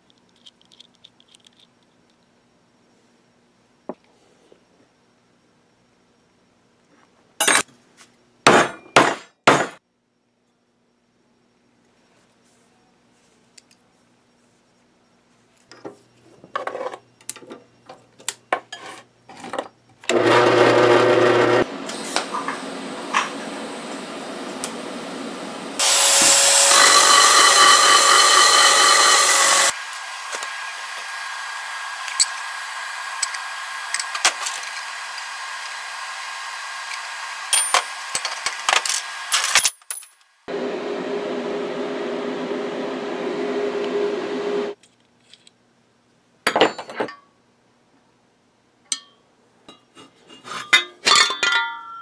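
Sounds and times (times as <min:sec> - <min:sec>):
electric drill running: 0:20.1 - 0:21.7, 0:25.8 - 0:38.1
welding arc hissing and crackling: 0:25.8 - 0:39.4
metal pipe parts clinking: 0:48.9 - 0:52.0.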